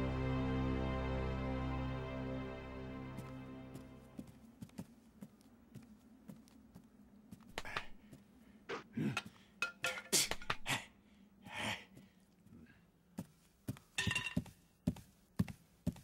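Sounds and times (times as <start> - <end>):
sharp knocks and clinks: 14.0 - 14.5.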